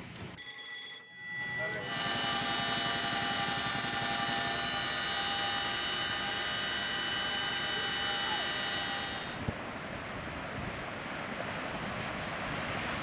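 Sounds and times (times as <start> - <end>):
helicopter rotors beating: 1.2 - 9.5
helicopter turbine whine: 1.2 - 10.4.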